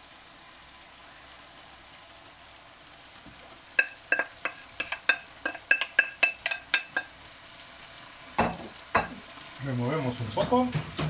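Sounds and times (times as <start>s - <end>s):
wok sizzling: 0.0s - 11.0s
wooden spoon clacking on plate: 3.8s - 7.1s.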